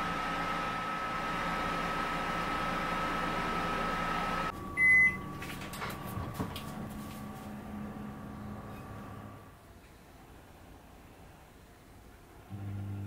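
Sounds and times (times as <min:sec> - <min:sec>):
microwave oven humming: 0:00.0 - 0:09.5, 0:12.4 - 0:13.0
short loud beep: 0:04.8 - 0:05.2.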